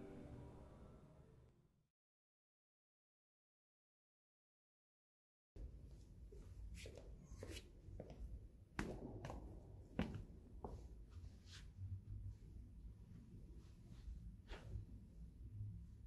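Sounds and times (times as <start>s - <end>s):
faint footsteps and shuffling: 5.6s - 16.0s
low room rumble: 5.6s - 16.0s.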